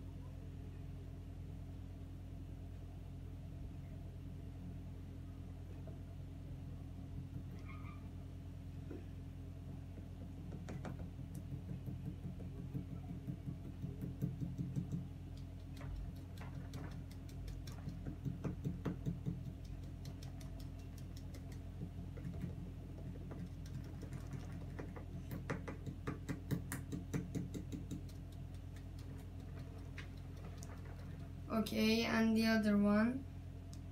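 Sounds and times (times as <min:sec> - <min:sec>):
steady low hum: 0:00.0 - 0:33.9
small clicks and taps: 0:10.0 - 0:31.4.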